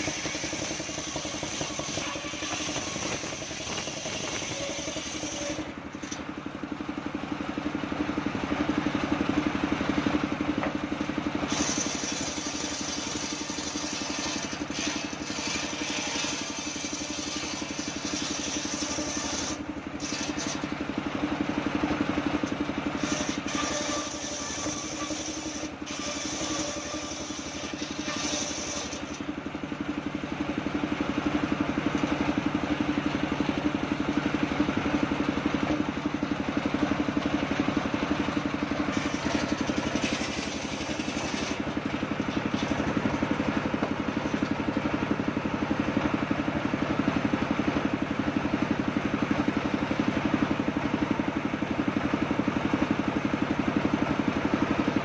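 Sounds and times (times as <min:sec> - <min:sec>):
saw blade cutting wood: 0:00.0 - 0:06.3, 0:11.4 - 0:20.8, 0:23.0 - 0:29.3, 0:38.9 - 0:44.7
engine drone: 0:00.0 - 0:55.0.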